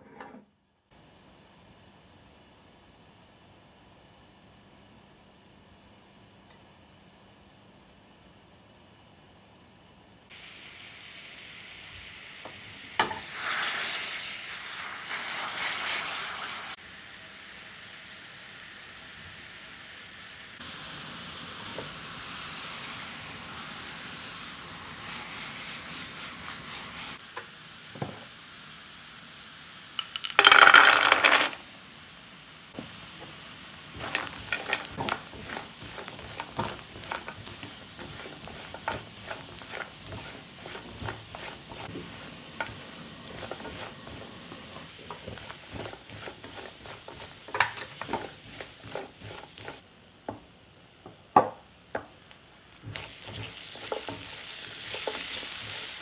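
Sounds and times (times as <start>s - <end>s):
sizzling: 0.9s - 56.0s
nuts clicking against pan: 30.0s - 31.6s
nuts rattling into pan: 30.0s - 31.6s, 34.0s - 37.6s
syrup boiling and bubbling: 52.8s - 56.0s.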